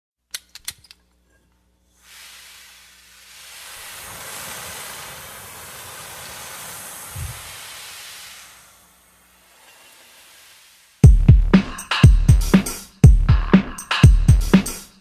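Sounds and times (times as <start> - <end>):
steady hiss: 1.6 - 13.0.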